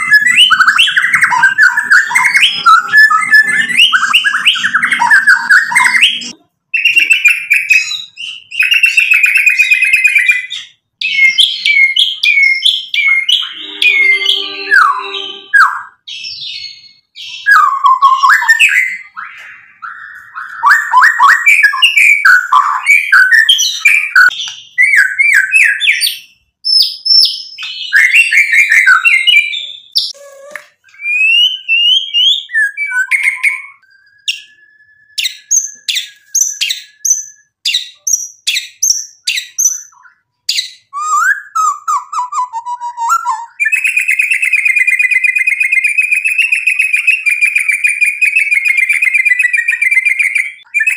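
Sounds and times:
bird song whistles and trills: 0.0s - 50.9s
bird buzzy trill: 13.0s - 16.0s.

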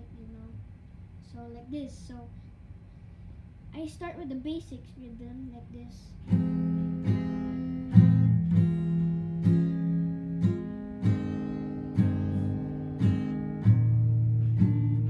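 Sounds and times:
acoustic guitar strumming: 6.3s - 15.0s.

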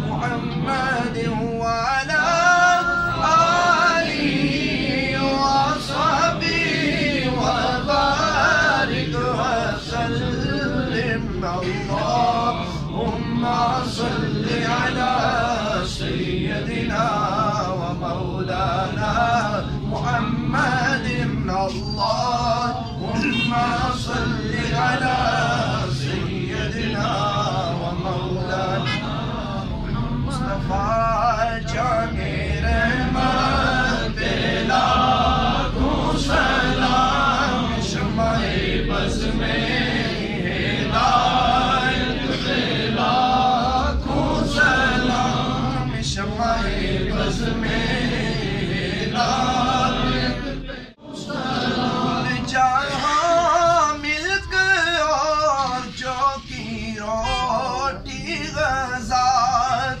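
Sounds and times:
man chanting devotional verses: 0.0s - 60.0s.

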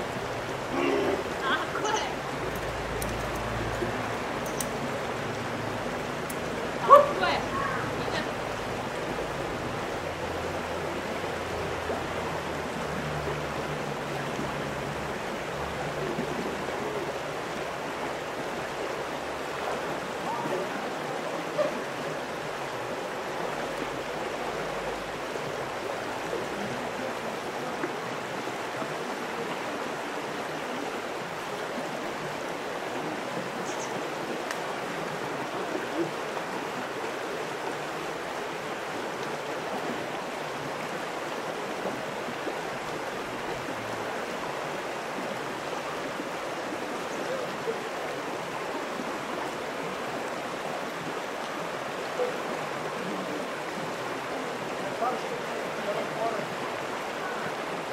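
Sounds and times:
stream rushing: 0.0s - 57.9s
faint clicks: 2.5s - 4.8s.

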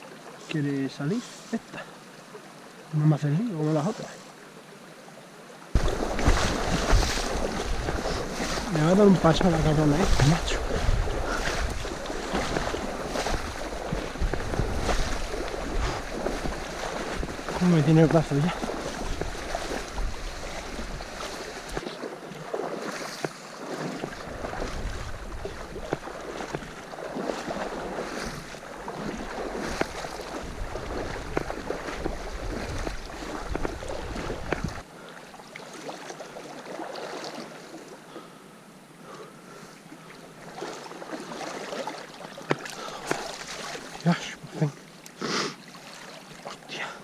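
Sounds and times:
river water flowing: 0.0s - 47.0s
wind buffeting microphone: 5.8s - 21.8s, 24.1s - 26.8s, 27.5s - 34.8s
rustling and scuffing movement: 5.8s - 21.9s, 22.9s - 34.8s.

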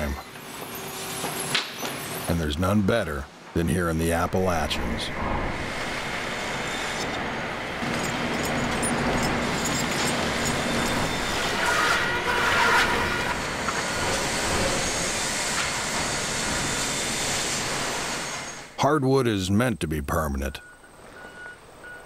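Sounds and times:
lumber mill machinery clatter: 5.7s - 18.5s.

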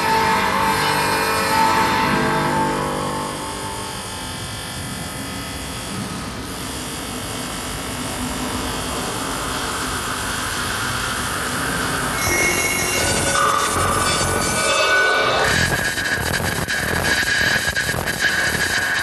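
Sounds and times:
buzzing electronic drone: 0.0s - 19.0s
high electronic sweep: 11.6s - 19.0s.

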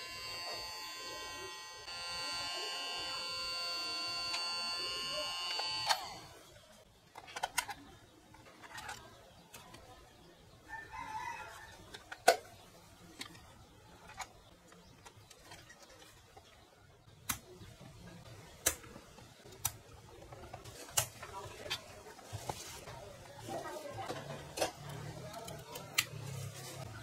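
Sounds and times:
small electric motor whining: 0.0s - 6.5s.

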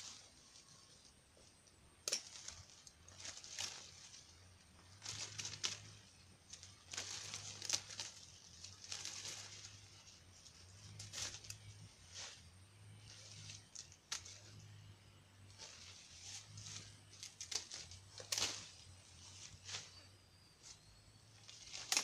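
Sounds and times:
leaves and branches rustling: 0.0s - 22.0s
pruning shears snipping: 2.0s - 4.1s, 13.1s - 14.7s, 15.6s - 18.8s, 21.4s - 22.0s.

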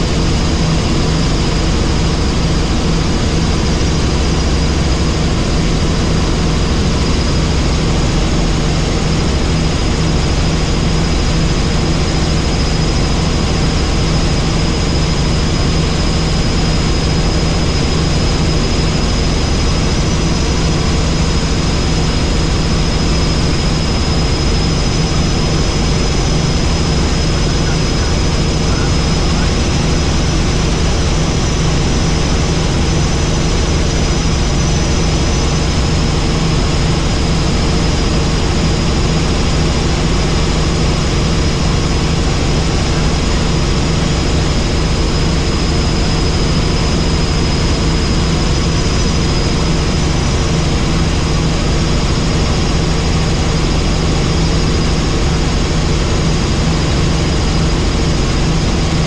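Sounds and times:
helicopter engine and rotor: 0.0s - 59.0s
high whine: 0.0s - 59.0s.

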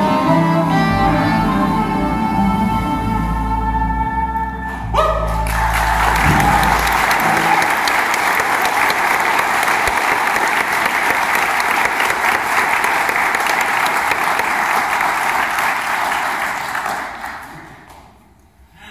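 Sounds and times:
audience applauding: 5.2s - 18.3s.

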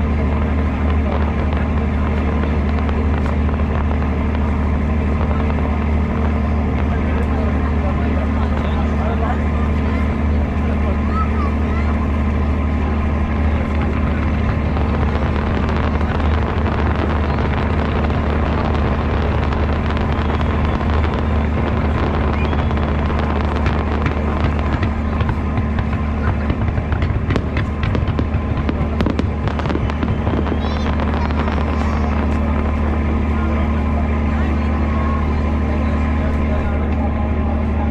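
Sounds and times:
firework shells bursting: 0.0s - 9.0s, 13.5s - 34.3s
firework crackles and pops: 0.0s - 37.0s
low rumble: 0.0s - 37.9s.

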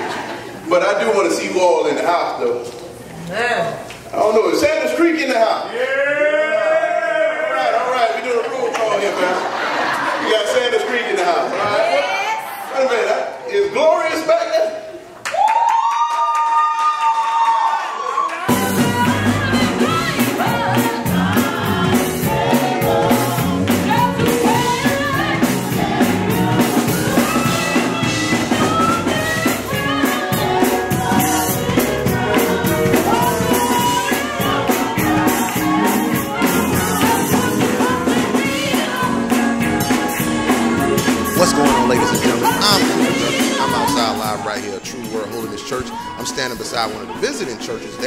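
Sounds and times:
women's group singing gospel: 18.4s - 48.0s
musical accompaniment: 18.5s - 48.0s.

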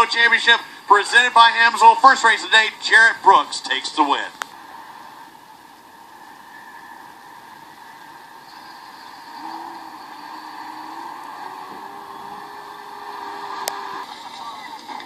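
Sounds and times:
engine drone: 4.6s - 15.0s.

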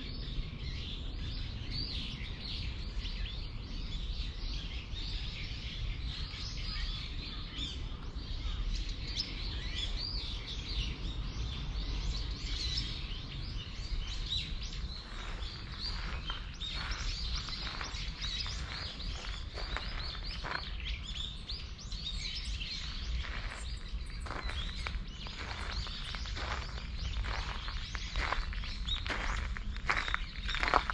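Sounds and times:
small birds chirping: 0.0s - 30.9s
steady low rumble: 7.2s - 30.9s.

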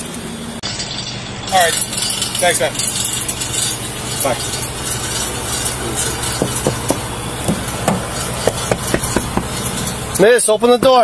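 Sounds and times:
idling vehicles hum: 0.0s - 11.0s
sharp knocks: 6.3s - 9.9s, 10.7s - 11.0s.

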